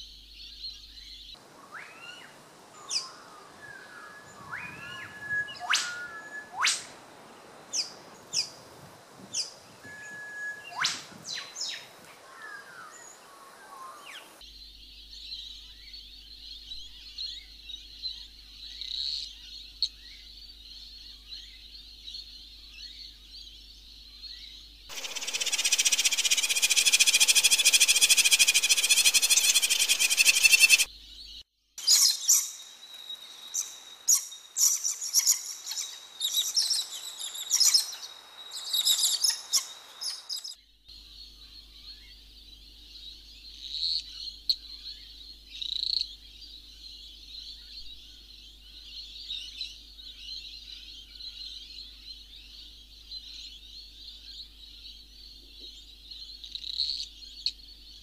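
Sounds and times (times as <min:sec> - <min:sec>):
birds chirping: 0:24.9 - 0:31.4.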